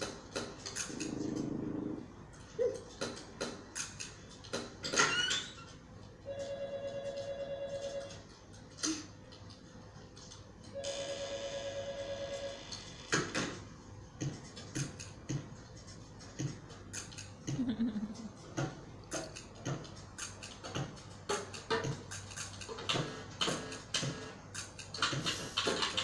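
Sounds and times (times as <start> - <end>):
irregular clicks and taps: 18.4 - 26.0.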